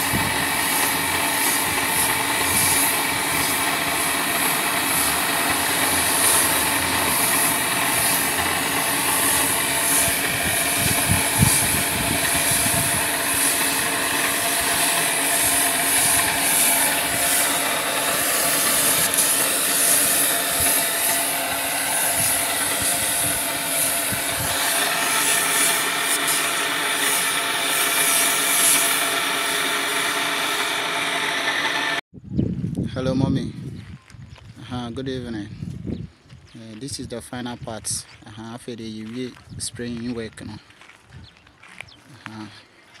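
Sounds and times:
air compressor drone: 0.0 - 32.0
paint spray gun hissing: 0.0 - 32.0.

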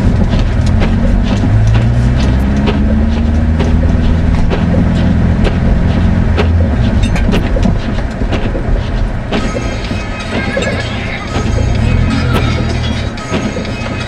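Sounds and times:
snow thudding against car body: 0.0 - 10.8
car engine running hard: 0.0 - 14.0.

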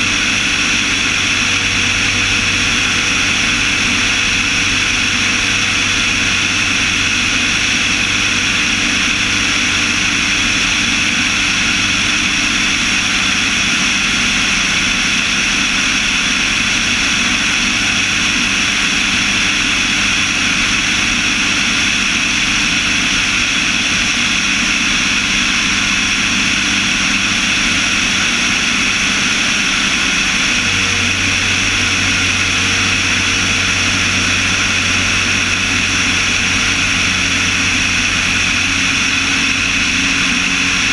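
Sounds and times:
low engine hum: 0.0 - 40.9
propeller aircraft engine running: 0.0 - 40.9.

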